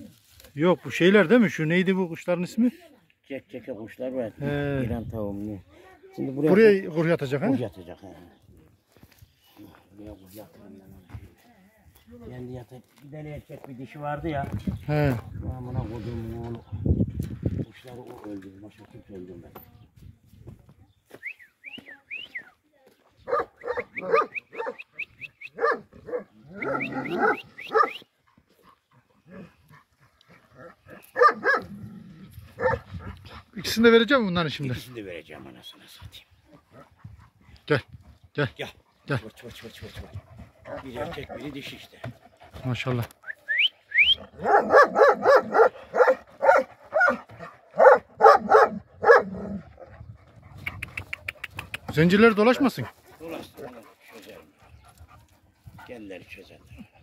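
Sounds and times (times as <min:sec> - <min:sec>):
large dogs barking: 0:23.2 - 0:33.6, 0:38.7 - 0:42.9, 0:44.0 - 0:56.3.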